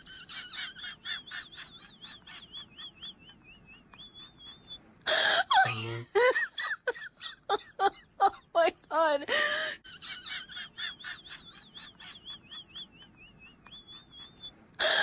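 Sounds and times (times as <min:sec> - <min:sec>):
person moaning: 0:05.6 - 0:06.1.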